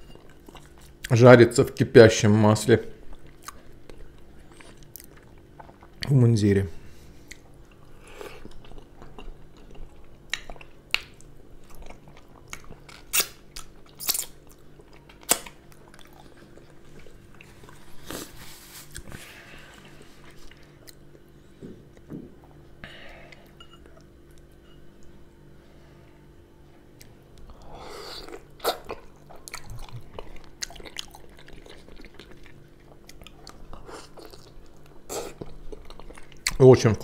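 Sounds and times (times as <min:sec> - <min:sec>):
wet chewing sounds: 0:00.1 - 0:01.1, 0:03.0 - 0:06.1, 0:07.1 - 0:22.6, 0:28.2 - 0:36.6.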